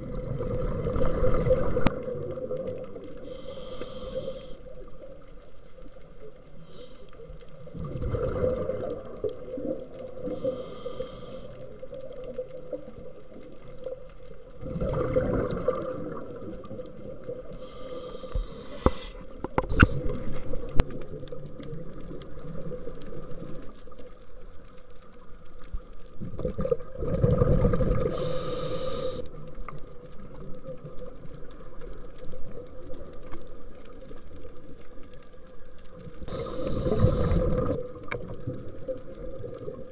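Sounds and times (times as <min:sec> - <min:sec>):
exhaled bubbles rushing underwater: 0:00.0 - 0:03.4, 0:07.5 - 0:18.7, 0:19.3 - 0:24.2, 0:26.0 - 0:39.9
regulator hissing inhalations: 0:03.2 - 0:04.6, 0:06.6 - 0:07.3, 0:10.2 - 0:11.8, 0:17.5 - 0:20.0, 0:28.0 - 0:29.3, 0:36.3 - 0:37.7.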